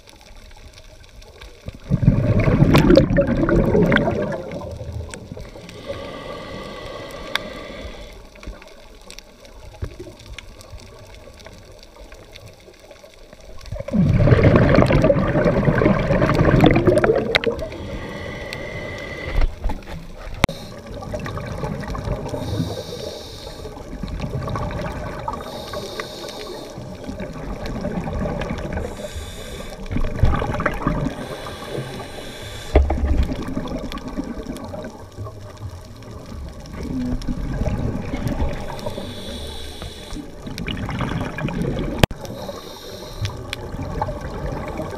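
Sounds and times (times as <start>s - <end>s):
gurgling exhaled bubbles: 1.6s - 8.3s, 13.4s - 44.9s
regulator hissing inhalations: 5.4s - 8.4s, 17.6s - 19.7s, 20.4s - 21.0s, 22.3s - 23.8s, 25.3s - 26.9s, 28.8s - 30.0s, 31.1s - 32.9s, 38.5s - 40.4s, 42.2s - 43.5s.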